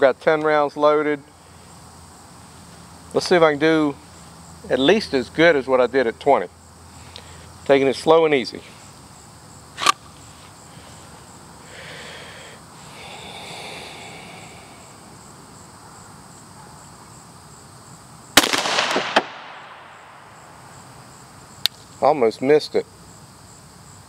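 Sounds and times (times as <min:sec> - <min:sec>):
pistol shot with echo: 0:18.4 - 0:20.3.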